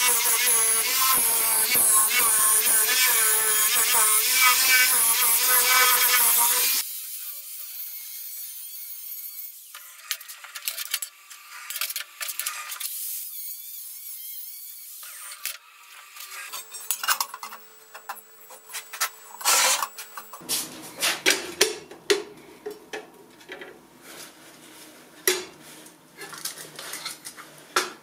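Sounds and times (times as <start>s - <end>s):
angle grinder cutting steel: 0.0s - 20.5s.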